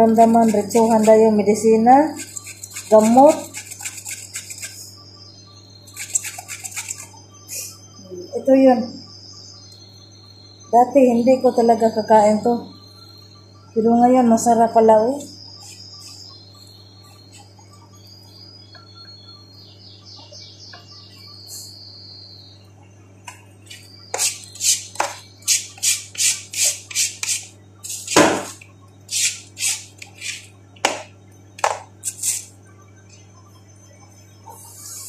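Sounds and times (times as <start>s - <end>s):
low steady hum: 0.0s - 35.0s
vegetable peeler scraping cucumber: 0.1s - 1.4s, 2.1s - 4.8s, 5.9s - 7.1s, 29.1s - 30.5s.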